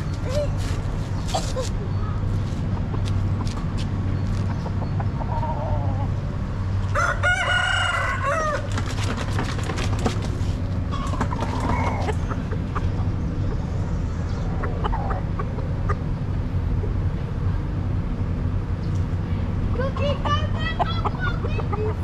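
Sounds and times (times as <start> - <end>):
rooster crowing: 6.9 - 8.7.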